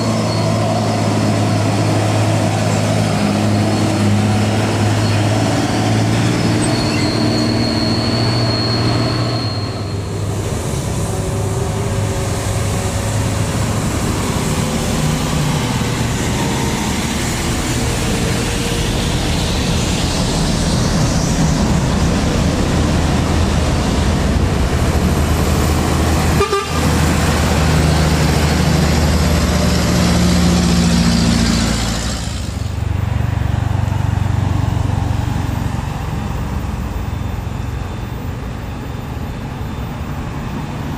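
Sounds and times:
diesel truck engines under load: 0:00.0 - 0:40.9
truck horn toots: 0:26.3 - 0:27.0.

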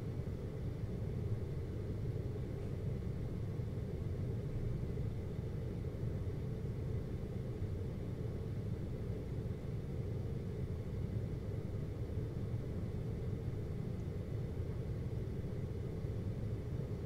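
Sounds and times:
air conditioner humming: 0:00.0 - 0:17.0.

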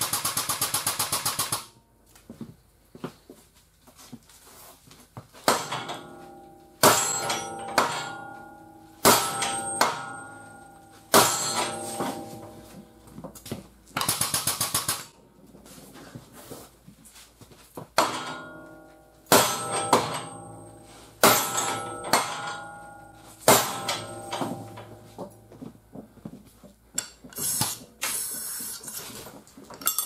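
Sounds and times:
heavy metal-on-metal strikes: 0:05.4 - 0:13.0, 0:18.0 - 0:25.4.

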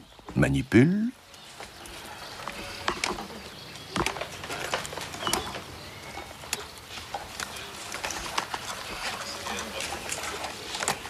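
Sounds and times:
faint bird calls: 0:00.0 - 0:11.0
beaks knocking plastic objects: 0:02.5 - 0:11.0.

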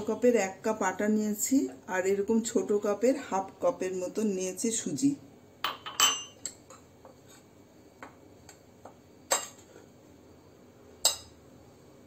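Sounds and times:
china clinking against dishes: 0:05.6 - 0:06.6.

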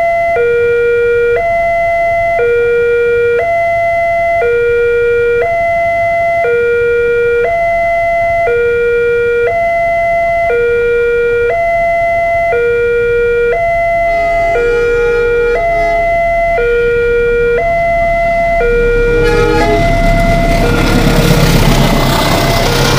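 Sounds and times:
level crossing two-tone alarm: 0:00.0 - 0:21.4
low rumble: 0:13.0 - 0:22.9.

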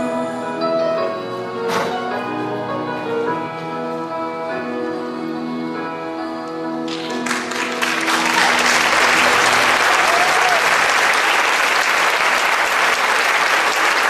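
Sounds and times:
audience applause: 0:06.9 - 0:14.0.

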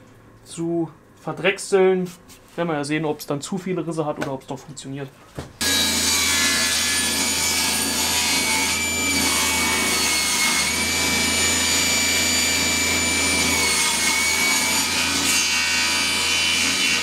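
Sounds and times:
woodworking machine cutting wood: 0:05.6 - 0:17.0.

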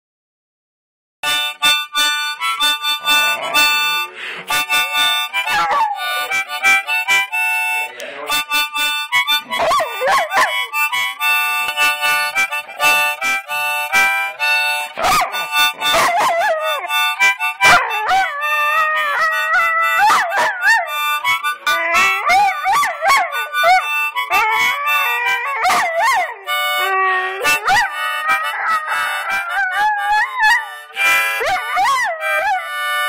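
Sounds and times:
harmonica playing: 0:01.2 - 0:33.0
dog howling: 0:05.3 - 0:06.6, 0:09.5 - 0:10.8, 0:14.8 - 0:33.0.

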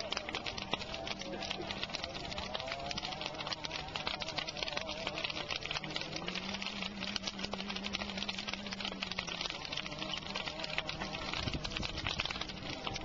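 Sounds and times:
bonfire crackling and popping: 0:00.0 - 0:13.0.

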